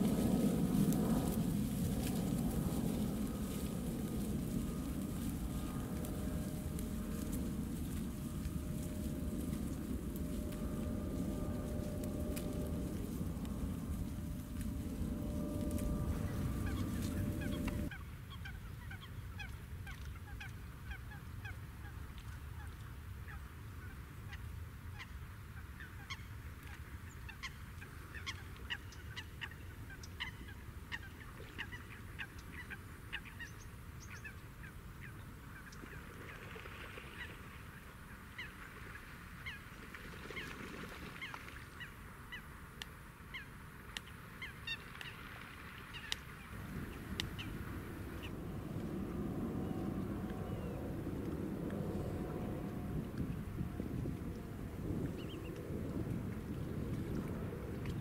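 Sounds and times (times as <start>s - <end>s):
low rumble: 0.0s - 17.9s, 46.4s - 58.0s
waterbirds calling: 4.2s - 18.0s, 43.3s - 58.0s.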